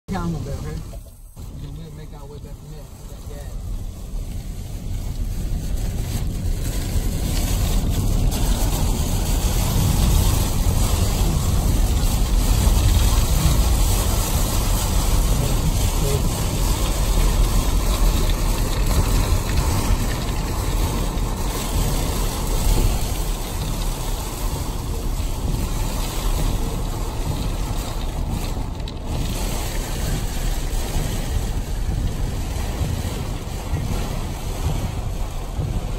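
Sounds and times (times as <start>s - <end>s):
heavy rain beating on car: 0.1s - 35.9s
tyre and road noise: 0.1s - 35.9s.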